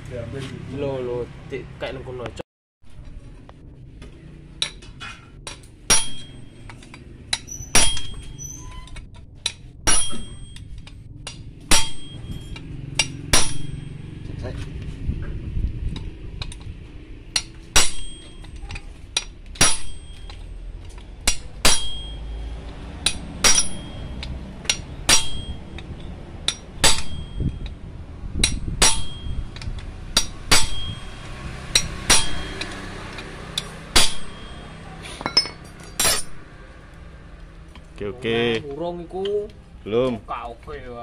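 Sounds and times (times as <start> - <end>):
hammer striking steel punch: 5.5 - 8.4, 9.4 - 14.1, 17.4 - 18.6, 19.2 - 20.4, 21.2 - 22.4, 23.0 - 25.8, 26.5 - 27.8, 28.4 - 33.0, 33.6 - 36.4.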